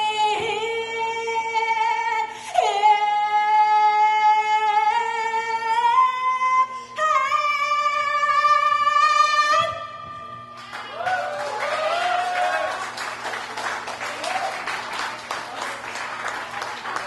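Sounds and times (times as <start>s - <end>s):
woman singing unaccompanied: 0.0s - 9.9s
audience applauding and cheering: 10.6s - 17.0s.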